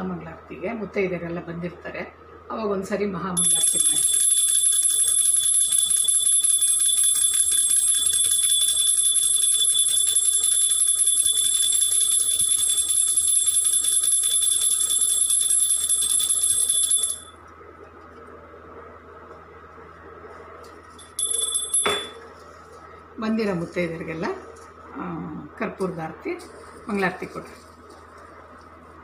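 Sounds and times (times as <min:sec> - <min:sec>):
hand bell ringing rapidly: 0:03.4 - 0:17.3, 0:21.0 - 0:22.2.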